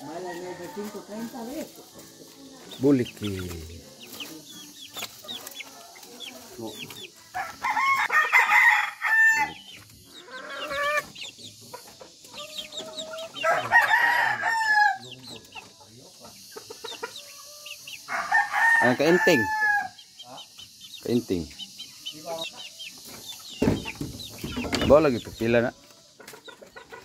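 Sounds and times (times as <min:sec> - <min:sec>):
rooster crowing: 0:00.0 - 0:01.4, 0:07.3 - 0:09.6, 0:12.4 - 0:15.2, 0:18.0 - 0:20.1
chickens clucking: 0:00.0 - 0:27.0.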